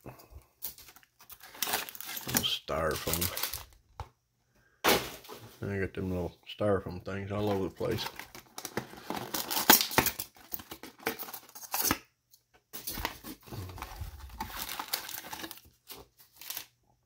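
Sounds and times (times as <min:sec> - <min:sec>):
foil packs and cardboard rustling: 0:00.7 - 0:03.8, 0:07.3 - 0:12.0, 0:12.8 - 0:16.7.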